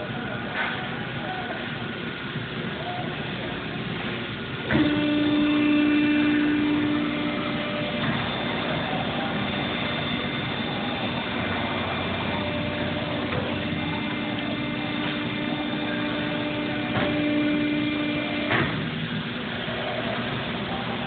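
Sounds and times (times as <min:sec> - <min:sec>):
industrial machinery running: 0:00.0 - 0:21.0
steady hum: 0:00.0 - 0:21.0
machine thump: 0:15.9 - 0:17.4, 0:18.3 - 0:19.0.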